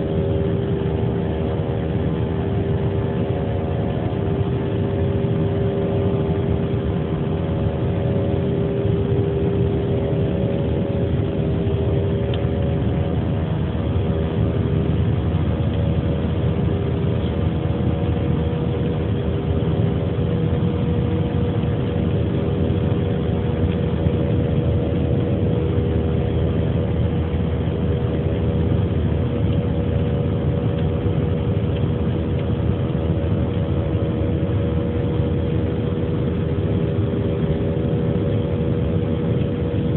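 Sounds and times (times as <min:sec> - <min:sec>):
constant hum tones: 0:00.0 - 0:39.9
jet engine cabin rumble: 0:00.0 - 0:39.9.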